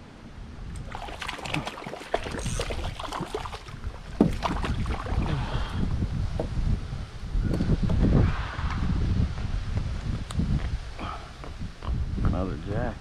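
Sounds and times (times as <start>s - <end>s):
wind rumbling on microphone: 0.0s - 13.0s
water splashing: 0.8s - 5.6s
knocks against kayak hull: 4.2s - 4.8s.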